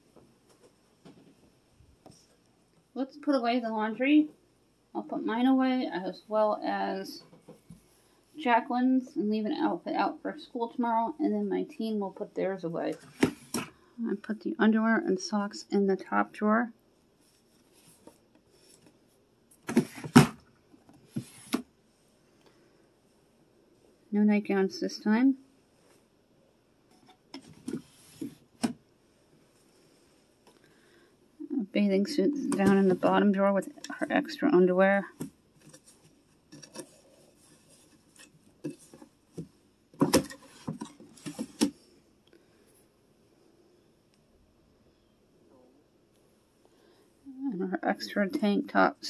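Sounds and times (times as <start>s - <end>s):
clothes rustling: 17.2s - 21.6s, 26.9s - 28.7s.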